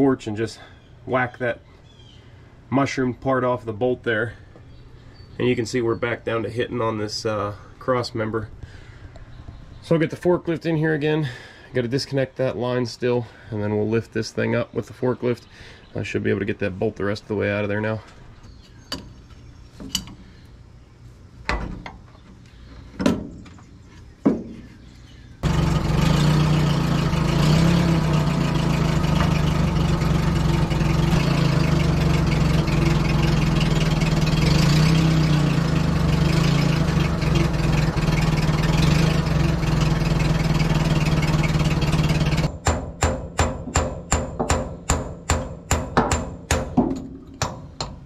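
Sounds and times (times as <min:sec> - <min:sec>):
forklift engine running: 0:25.4 - 0:42.5.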